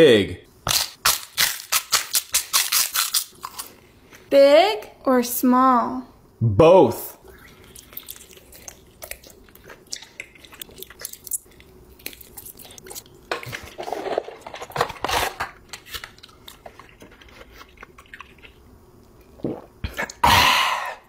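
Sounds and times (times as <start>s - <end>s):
person chewing gummy candy: 0.7s - 3.8s, 7.2s - 13.7s, 15.8s - 20.2s.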